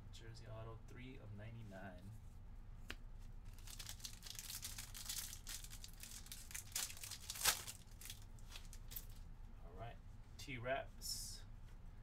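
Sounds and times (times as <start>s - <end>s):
foil wrapper tearing and crinkling: 3.5s - 9.2s.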